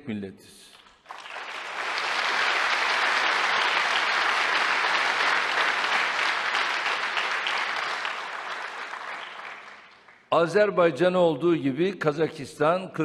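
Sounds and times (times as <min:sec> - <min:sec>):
audience applauding: 0:00.8 - 0:10.3.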